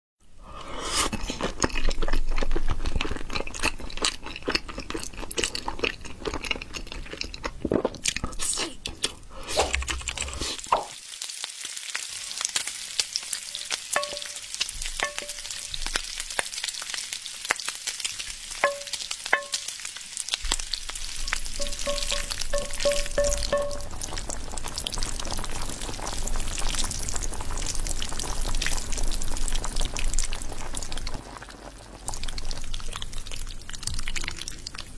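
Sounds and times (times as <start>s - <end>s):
food sizzling in frying pan: 9.5s - 34.9s.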